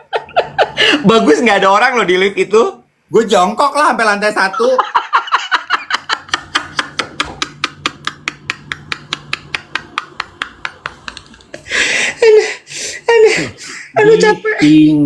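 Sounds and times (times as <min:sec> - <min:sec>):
man laughing breathlessly: 0:00.2 - 0:01.1, 0:06.4 - 0:14.0.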